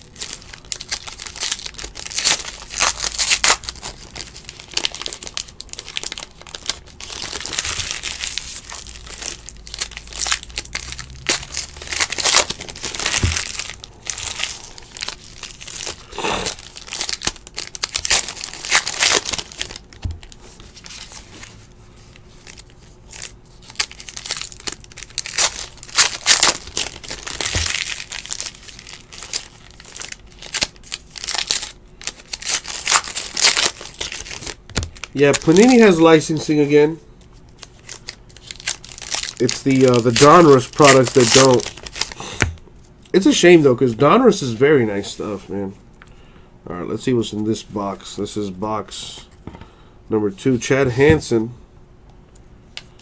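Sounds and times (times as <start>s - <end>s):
plastic wrappers crinkling and tearing: 0.0s - 43.4s.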